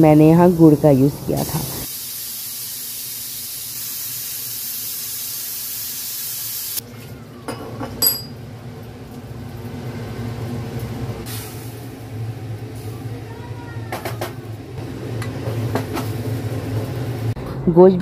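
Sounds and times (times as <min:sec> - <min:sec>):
steel pot clinking: 0:07.4 - 0:08.4.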